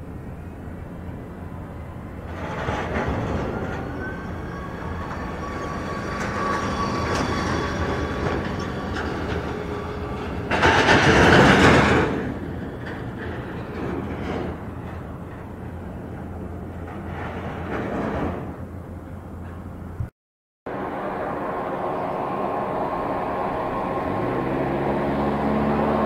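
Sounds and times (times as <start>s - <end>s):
high whine from aircraft: 0.0s - 16.9s, 20.7s - 26.0s
loud rush of noise: 20.7s - 26.0s.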